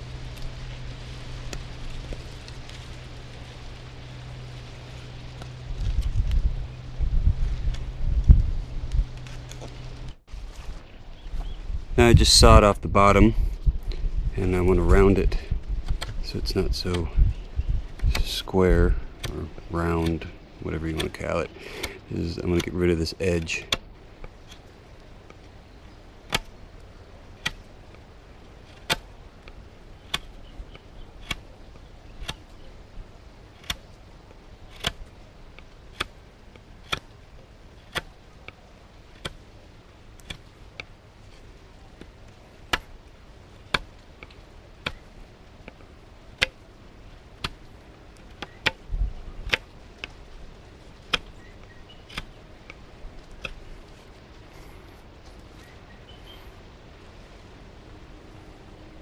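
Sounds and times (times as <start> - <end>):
knife cutting wood shavings: 34.6 - 36.1.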